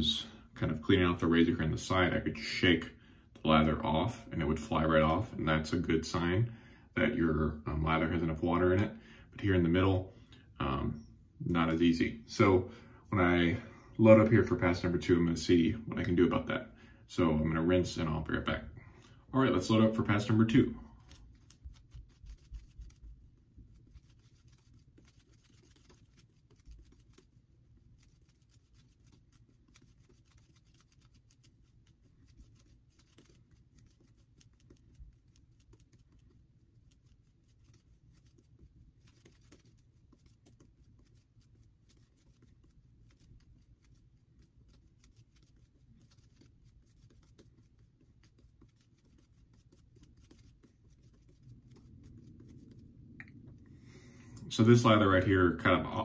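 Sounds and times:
shaving brush lathering soap: 0:19.4 - 0:53.7.

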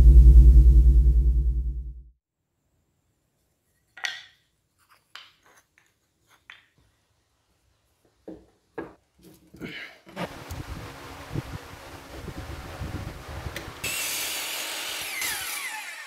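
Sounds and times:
wooden blocks clacking: 0:03.9 - 0:06.9.

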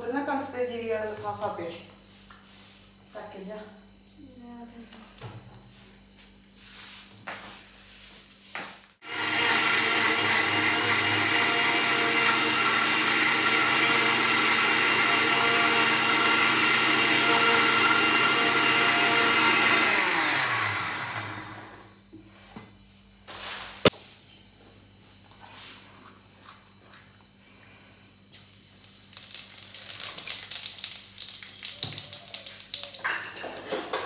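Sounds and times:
mixer grinder whining: 0:09.0 - 0:22.0.

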